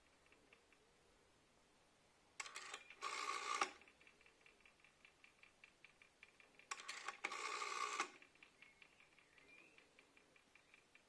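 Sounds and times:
rotary dial ticking: 0.0 - 1.0, 2.4 - 11.0
rotary dial rasp: 2.4 - 11.0.

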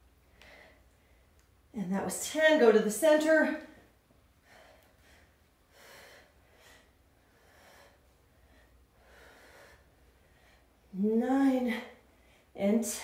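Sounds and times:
woman breathing: 0.0 - 1.5, 3.6 - 11.0, 11.6 - 12.6
low room hum: 0.0 - 13.0.

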